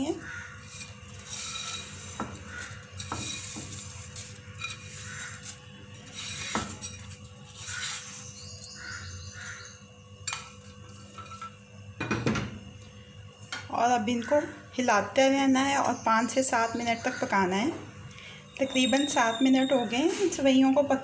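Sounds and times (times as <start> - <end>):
metal cookware clinking and scraping: 0.6 - 8.8, 10.2 - 11.6.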